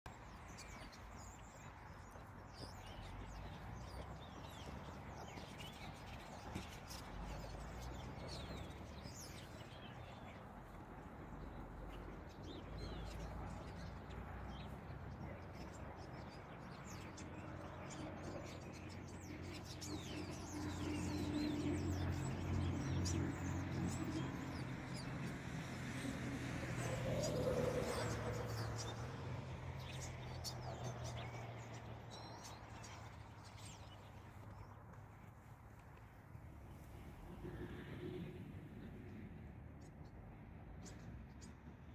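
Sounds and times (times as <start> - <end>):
flock of birds chattering: 0.1 - 29.2
songbirds chirping: 0.1 - 41.9.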